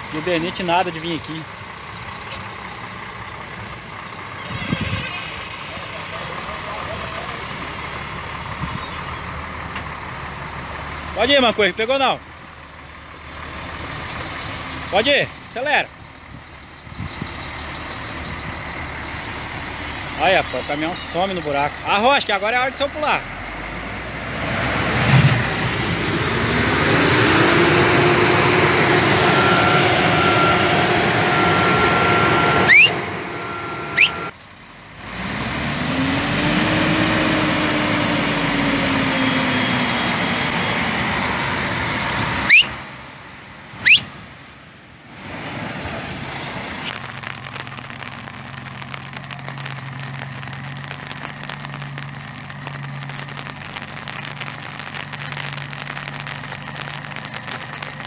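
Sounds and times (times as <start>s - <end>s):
truck diesel engine straining: 0.0s - 58.0s
brief sharp squeals: 4.4s - 6.4s, 28.9s - 34.3s, 42.4s - 42.8s.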